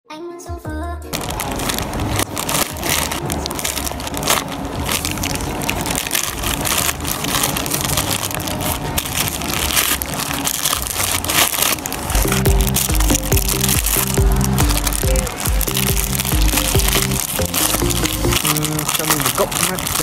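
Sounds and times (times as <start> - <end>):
plastic bag tearing and crackling: 1.1 - 20.0
plastic wrapping crinkling: 1.1 - 20.0.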